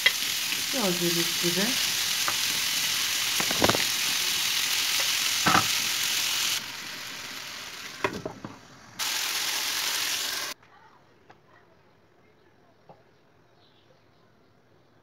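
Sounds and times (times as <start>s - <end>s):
vegetables sizzling in a pan: 0.0s - 10.6s
wooden spoon knocking on pan: 5.0s - 5.8s.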